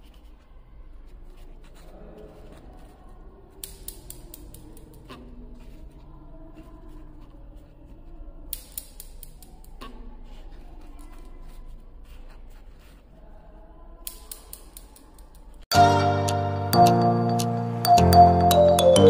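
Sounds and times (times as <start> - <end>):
loud music: 15.7 - 19.0.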